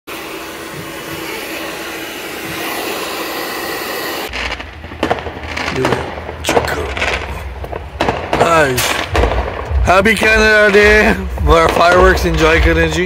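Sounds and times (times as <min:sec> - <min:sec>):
hair dryer blowing: 0:00.1 - 0:04.4
firework bang: 0:00.1 - 0:13.0
low rumble: 0:04.3 - 0:13.0.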